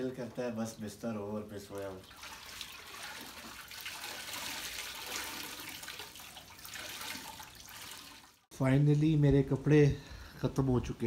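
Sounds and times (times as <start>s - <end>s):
water splashing and trickling: 1.2s - 8.5s
wet clothes being wrung out: 1.7s - 8.5s.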